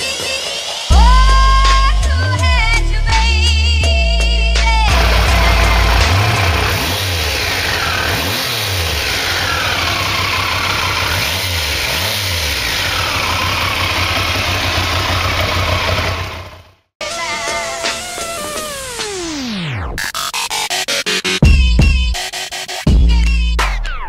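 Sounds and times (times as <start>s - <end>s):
motorcycle engine revving: 4.9s - 16.9s.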